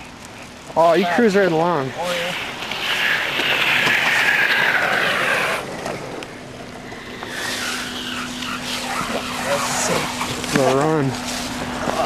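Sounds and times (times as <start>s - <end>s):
steady low hum: 0.0s - 12.0s
wheels rolling on asphalt: 0.0s - 12.0s
loud hiss: 7.0s - 11.6s.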